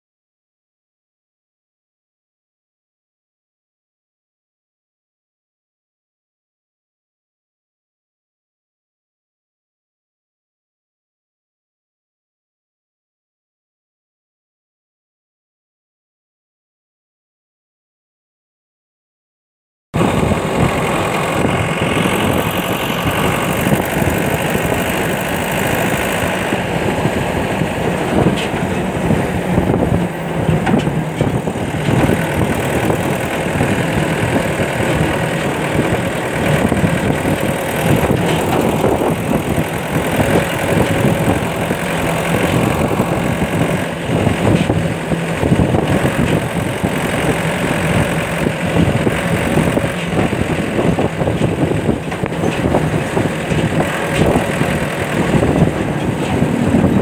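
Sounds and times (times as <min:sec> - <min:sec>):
car engine running: 0:20.0 - 0:57.0
rushing wind noise: 0:20.0 - 0:57.0.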